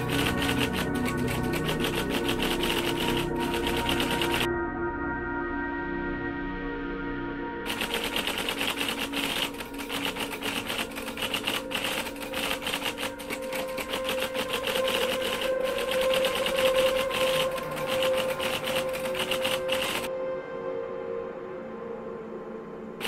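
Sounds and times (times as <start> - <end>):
background music steady note: 0.0 - 23.0
typewriter key clicks: 7.7 - 20.1.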